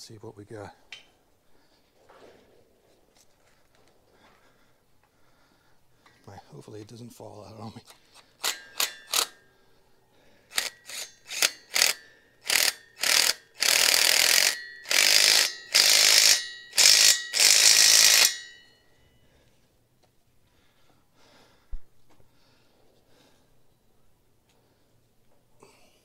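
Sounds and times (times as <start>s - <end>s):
cordless power driver running: 10.5s - 18.4s.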